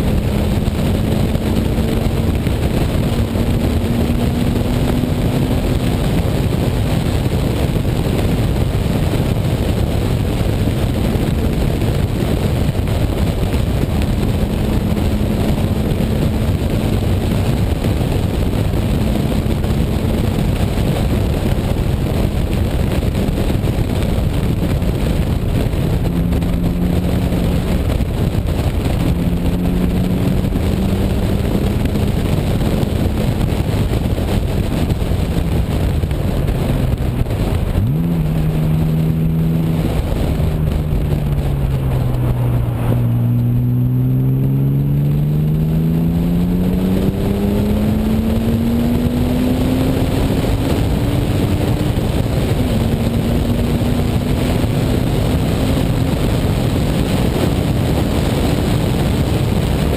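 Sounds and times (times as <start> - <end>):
race car engine revving: 0.0 - 59.9
wind and road noise: 0.0 - 59.9.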